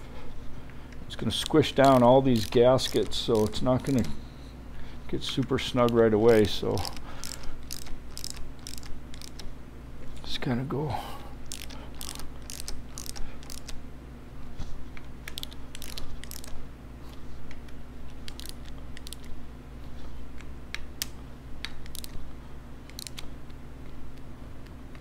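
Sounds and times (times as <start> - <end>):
ratchet wrench clicking: 1.4 - 4.1, 5.8 - 9.4, 11.5 - 13.8, 15.3 - 16.6, 18.3 - 19.3, 21.8 - 22.2, 22.9 - 23.2.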